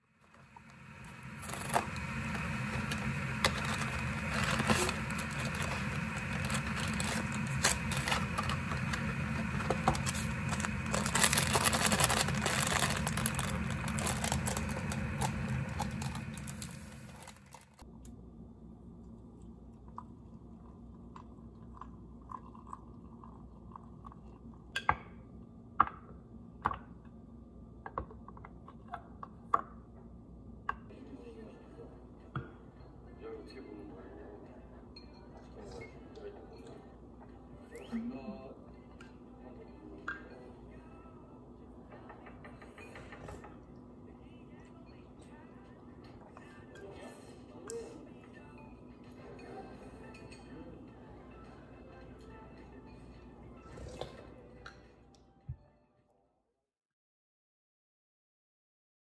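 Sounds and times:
cardboard box and sachet tearing: 1.2s - 17.8s.

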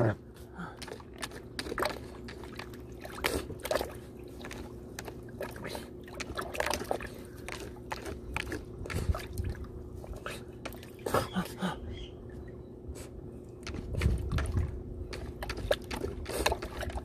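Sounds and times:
dog splashing in water: 0.8s - 11.1s, 13.7s - 17.0s.

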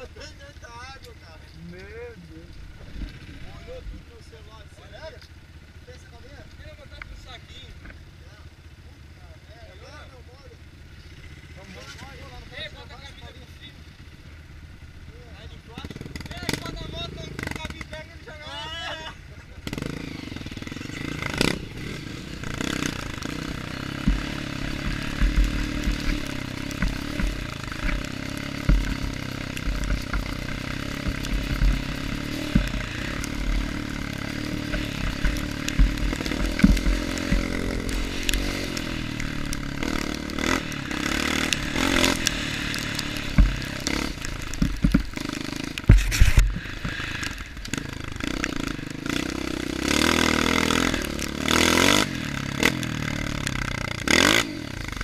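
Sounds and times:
dirt bike engine revving: 0.0s - 55.0s
bike knocking and rattling: 19.6s - 55.0s.

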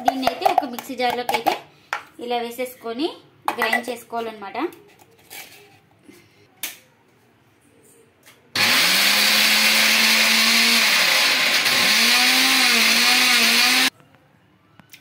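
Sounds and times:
mixer grinder motor whining: 8.6s - 13.9s.

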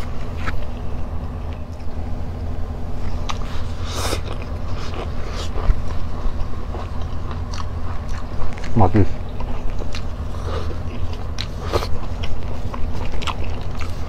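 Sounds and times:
person chewing food: 0.0s - 2.0s, 2.9s - 14.0s
steady low hum: 0.0s - 14.0s.

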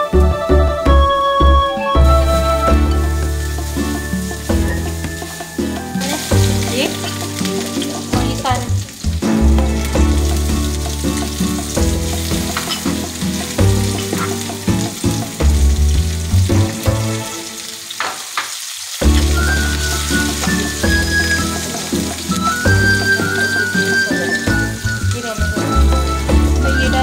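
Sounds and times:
background music: 0.0s - 18.0s, 19.0s - 27.0s
food sizzling in hot oil: 2.0s - 27.0s
spatula scraping pan: 11.6s - 14.6s.

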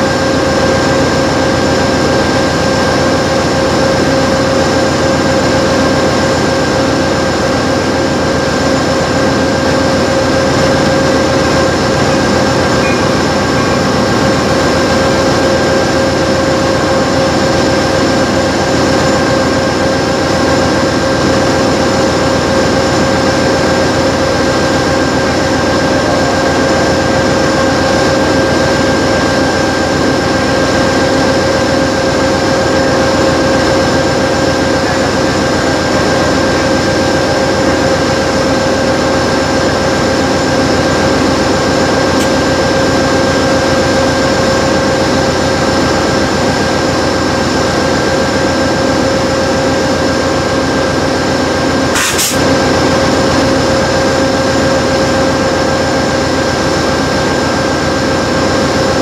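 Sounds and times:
high whine: 0.0s - 59.0s
train noise: 0.0s - 59.0s
short click: 52.0s - 52.4s.

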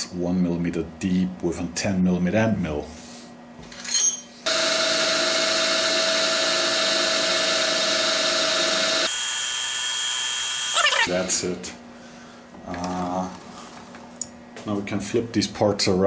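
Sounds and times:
milling machine whine: 4.5s - 11.7s.

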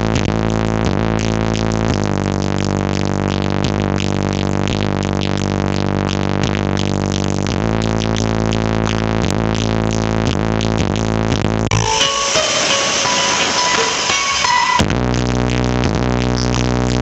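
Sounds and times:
loud electronic dance music: 11.7s - 15.0s.

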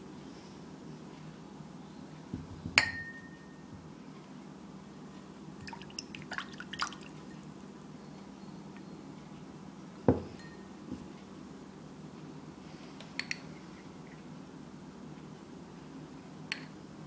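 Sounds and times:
bowl clicking and tapping: 5.6s - 7.2s.

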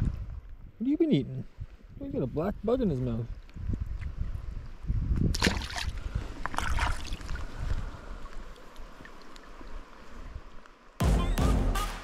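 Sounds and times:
wind rumble on microphone: 0.0s - 9.0s
fish splashing into water: 5.3s - 7.4s
river water splashing: 5.3s - 11.0s.

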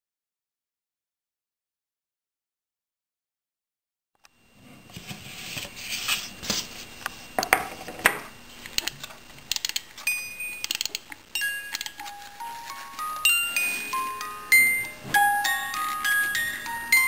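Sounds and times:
music box plucking notes: 10.1s - 17.0s.

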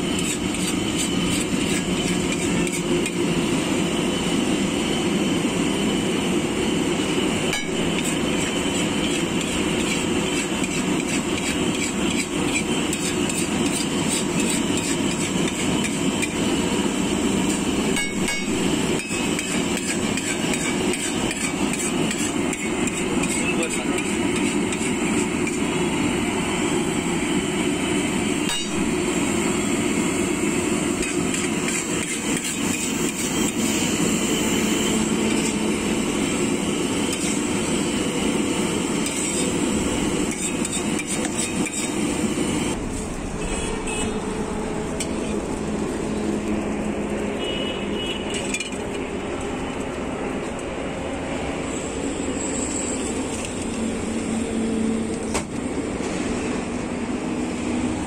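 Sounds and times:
metal spatula scraping griddle: 0.0s - 3.2s, 7.6s - 16.6s, 17.4s - 25.8s, 30.9s - 36.2s, 36.8s - 43.0s.

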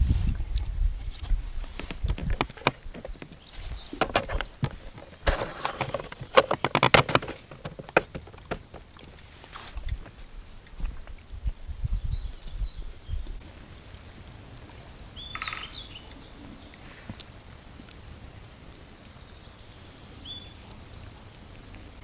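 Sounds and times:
wooden box clicks and knocks: 1.8s - 9.0s.

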